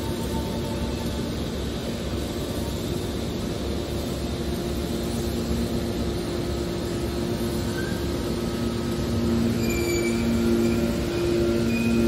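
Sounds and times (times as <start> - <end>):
short high squeals: 9.4 - 12.0.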